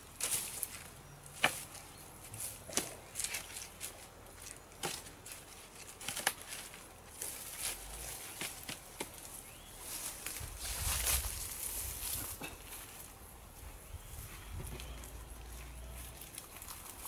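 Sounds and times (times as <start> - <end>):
sticks knocking on wood pile: 1.4 - 9.4, 12.0 - 13.0.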